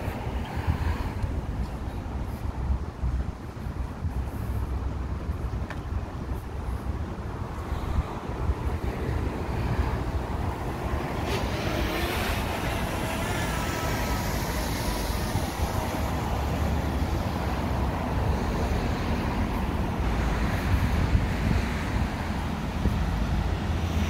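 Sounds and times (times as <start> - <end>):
traffic rumble: 0.0 - 24.0.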